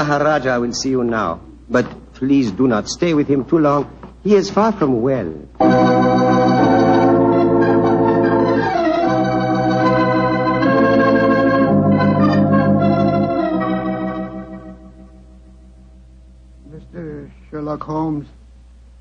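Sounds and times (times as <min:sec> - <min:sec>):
organ chords: 0:04.8 - 0:19.0.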